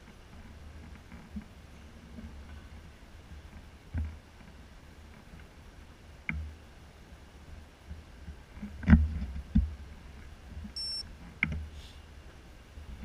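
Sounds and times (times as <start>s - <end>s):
short high beep: 10.8s - 11.0s.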